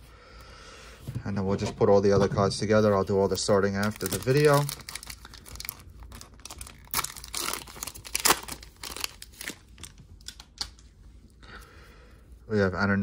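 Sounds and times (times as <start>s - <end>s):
foil wrapper tearing and crinkling: 3.4s - 10.8s.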